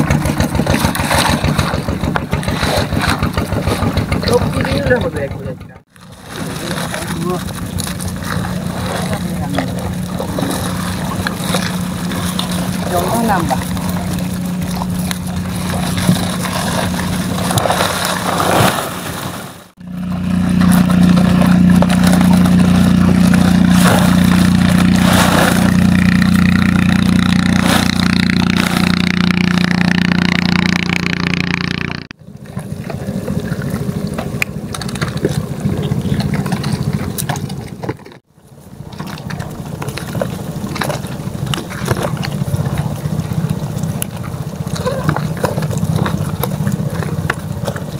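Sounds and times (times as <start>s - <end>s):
small engine running: 0.0s - 18.6s, 19.8s - 32.1s.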